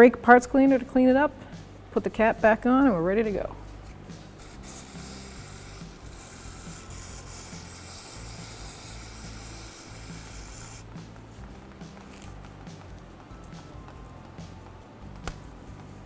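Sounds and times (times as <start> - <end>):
aerosol can spraying hiss: 4.3 - 10.9.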